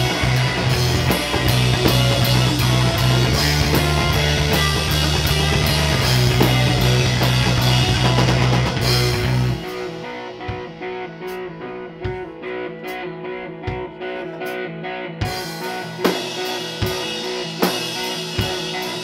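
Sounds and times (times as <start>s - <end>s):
electric bass: 0.0s - 12.2s
drum kit with cymbals: 0.0s - 13.0s, 15.2s - 19.0s
distorted electric guitar: 0.0s - 19.0s.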